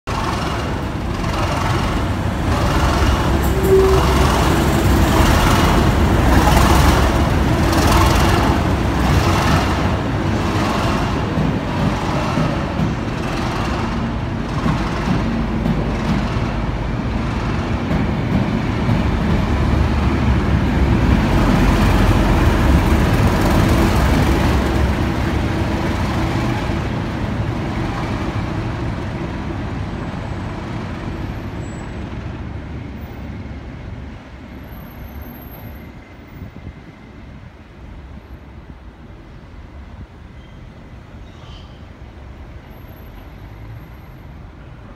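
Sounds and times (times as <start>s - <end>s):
diesel locomotive engine rumble: 0.0s - 44.9s
wheels clattering on rails: 0.1s - 32.6s.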